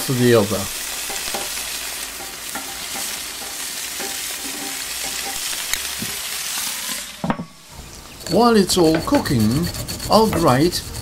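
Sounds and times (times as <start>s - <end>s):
onions sizzling on a grill: 0.0s - 9.5s.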